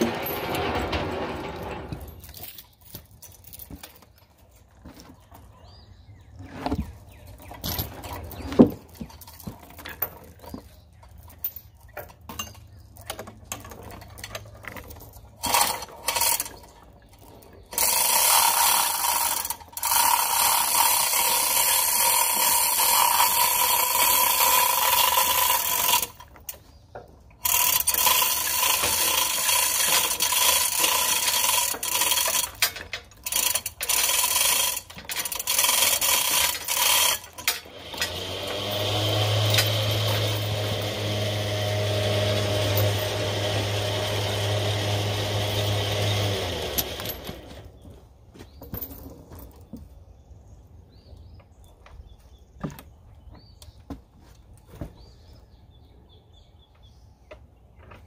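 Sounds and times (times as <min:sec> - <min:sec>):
chain hoist ratcheting and rattling: 0:00.0 - 0:05.5, 0:07.0 - 0:47.8
engine running low: 0:37.6 - 0:47.8.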